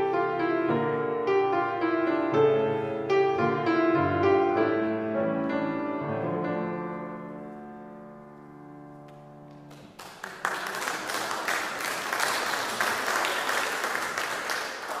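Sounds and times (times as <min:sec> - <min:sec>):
audience applause: 0:09.7 - 0:15.0.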